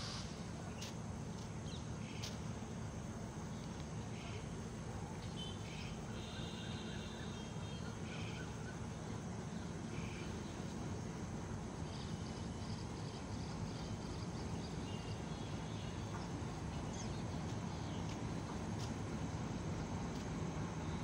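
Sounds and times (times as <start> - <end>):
insects chirping: 0.0 - 21.0
distant train rumbling: 7.4 - 21.0.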